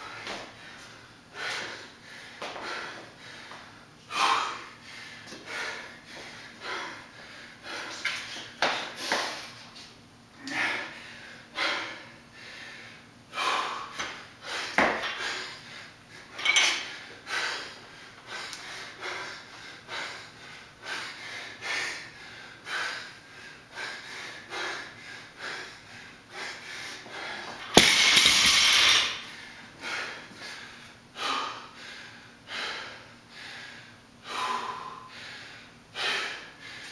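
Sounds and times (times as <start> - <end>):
hard rapid breathing: 0.0 - 9.6, 10.5 - 36.9
barbell crashing onto concrete: 27.6 - 29.3
barbell clank: 27.7 - 29.2.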